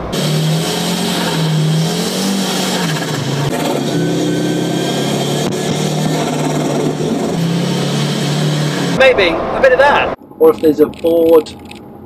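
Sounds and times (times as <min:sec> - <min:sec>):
rally car engine running hard: 0:00.0 - 0:09.0.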